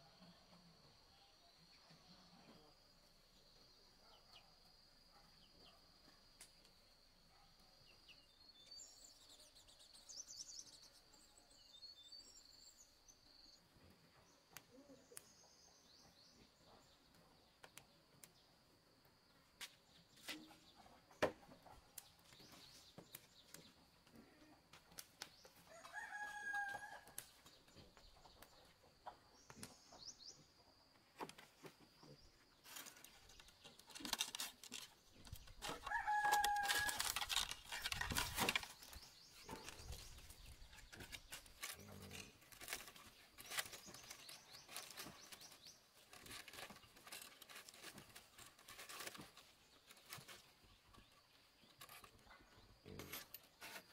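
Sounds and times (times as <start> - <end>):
faint bird chirps: 0.0 - 18.3
rooster crowing: 25.7 - 27.1, 35.8 - 37.1.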